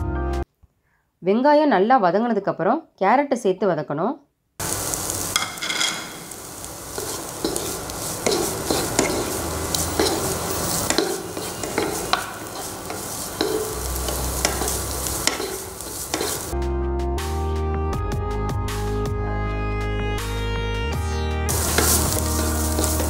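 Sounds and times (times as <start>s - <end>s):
background music: 0.0s - 0.4s, 16.6s - 23.0s
vegetables sizzling in oil: 4.6s - 16.6s, 21.5s - 23.0s
wooden spoon scraping pan: 5.3s - 16.6s, 21.6s - 23.0s.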